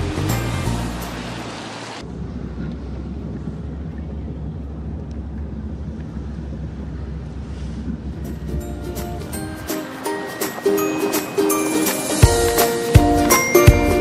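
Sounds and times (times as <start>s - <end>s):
music: 0.0s - 1.4s, 8.5s - 14.0s
car driving rumble inside cabin: 0.0s - 9.6s.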